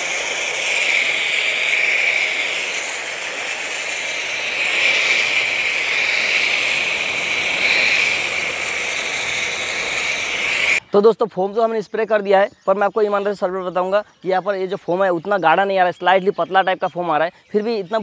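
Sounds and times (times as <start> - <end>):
foam cannon spraying hiss: 0.0 - 10.8.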